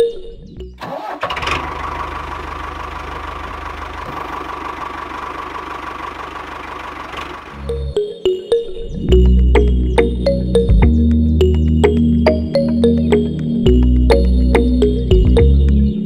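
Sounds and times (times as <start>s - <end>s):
toy tractor motor whining: 0.8s - 7.7s.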